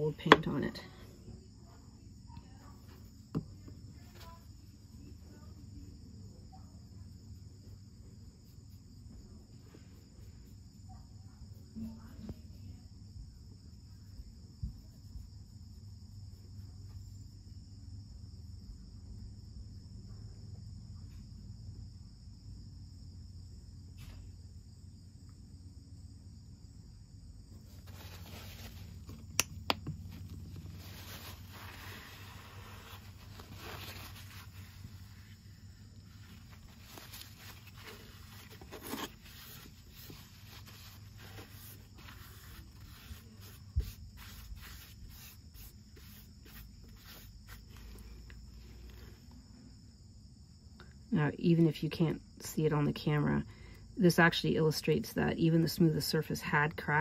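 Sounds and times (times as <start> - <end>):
cloth wiping surface: 27.6 - 49.1
fingertip rubbing paint on ceramic: 27.6 - 49.1.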